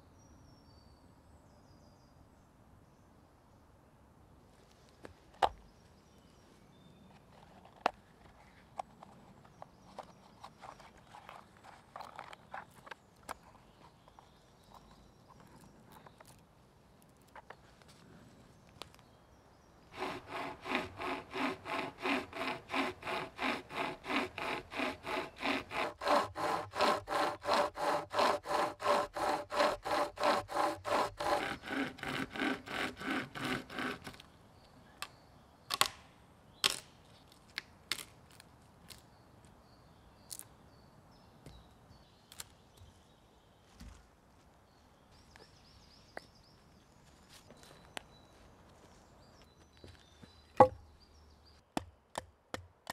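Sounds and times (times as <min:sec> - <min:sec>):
pocket chainsaw cutting branch: 0:19.9 - 0:34.3
sharp wooden knocks: 0:50.6 - 0:50.8.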